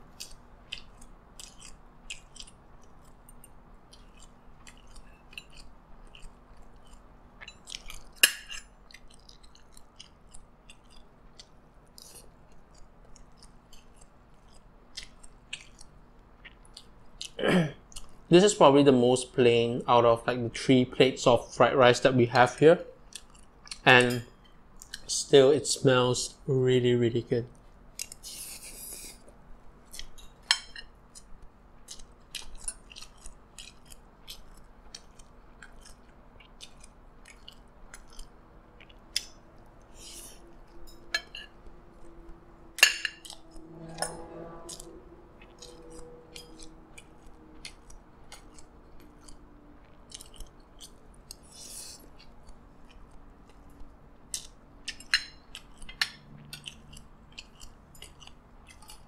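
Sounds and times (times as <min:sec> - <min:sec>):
chewing food: 0:00.0 - 0:18.3, 0:22.4 - 0:26.4, 0:27.5 - 0:59.0
cutlery clicking on plate: 0:07.4 - 0:08.7, 0:30.4 - 0:30.9, 0:40.8 - 0:41.6, 0:42.8 - 0:44.9, 0:54.4 - 0:56.7.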